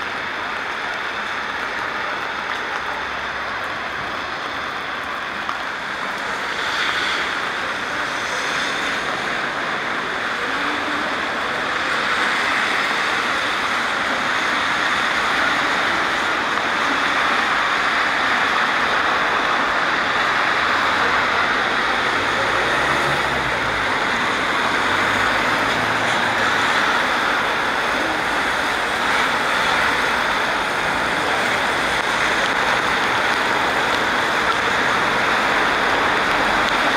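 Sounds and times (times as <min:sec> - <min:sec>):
rain hiss on wet street: 0:00.0 - 0:36.9.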